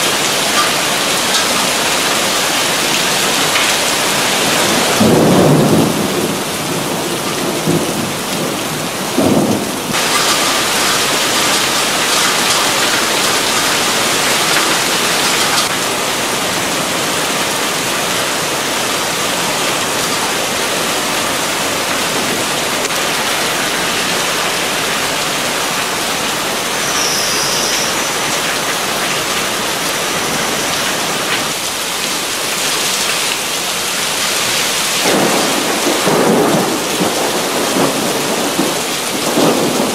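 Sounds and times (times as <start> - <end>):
thunder rumbles: 0.0 - 16.3, 35.0 - 39.9
heavy rain splashing on street: 0.0 - 39.9.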